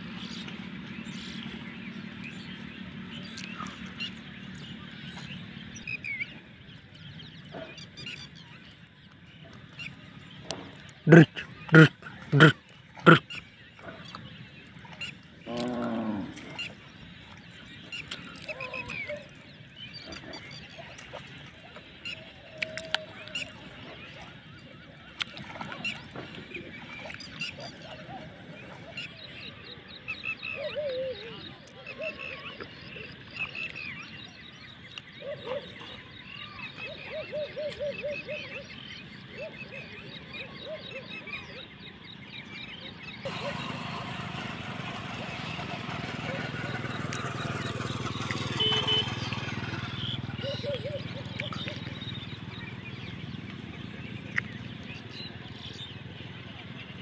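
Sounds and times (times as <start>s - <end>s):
cow mooing: 15.5s - 16.4s.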